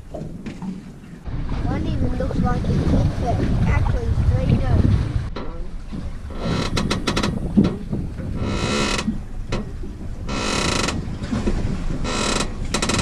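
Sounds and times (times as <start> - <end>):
padded boat seat creaking: 5.3 - 13.0.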